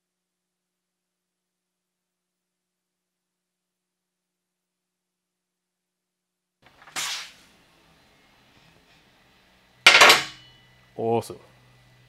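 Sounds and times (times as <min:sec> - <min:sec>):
faint steady hum: 0:06.6 - 0:12.0.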